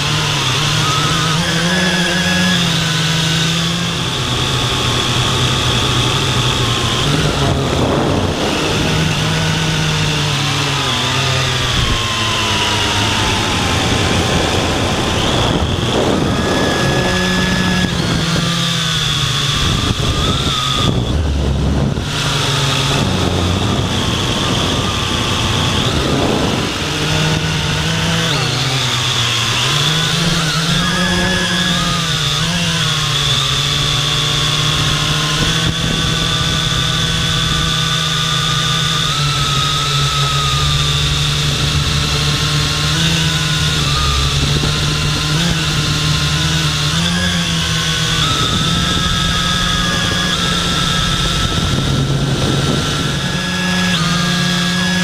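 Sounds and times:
drone propellers whining: 0.0 - 55.0.

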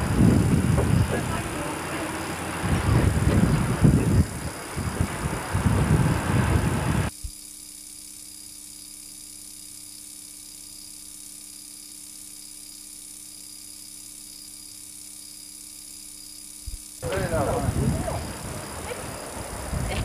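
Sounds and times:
loud noisy rumble: 0.0 - 7.1, 17.0 - 20.0.

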